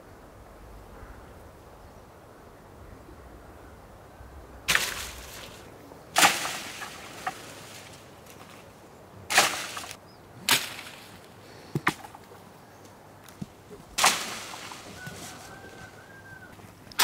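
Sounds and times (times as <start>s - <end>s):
rustle of leaves: 0.0s - 17.0s
wooden pole striking branches: 4.7s - 8.7s, 9.3s - 12.4s, 13.3s - 16.2s.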